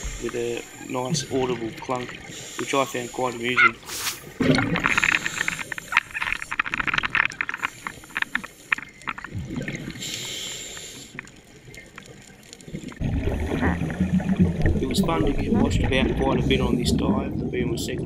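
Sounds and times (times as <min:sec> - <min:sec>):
underwater exhaust bubbles: 0:00.0 - 0:18.0
breath hissing through regulator: 0:02.3 - 0:06.2, 0:10.0 - 0:11.2.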